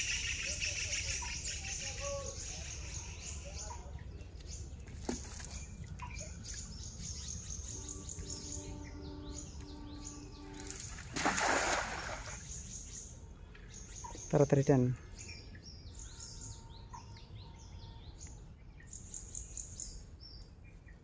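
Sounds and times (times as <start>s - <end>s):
birds chirping: 0.0s - 21.0s
net splashing onto water: 10.6s - 12.4s.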